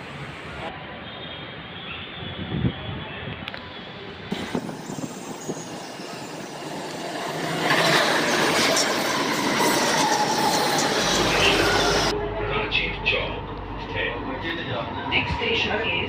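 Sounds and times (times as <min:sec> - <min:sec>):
train passing rumble: 0:03.4 - 0:16.0.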